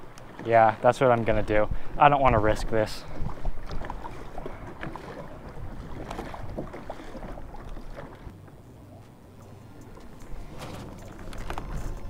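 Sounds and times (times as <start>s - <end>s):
water slapping against kayak: 0.0s - 8.3s
wind buffeting microphone: 1.1s - 8.3s.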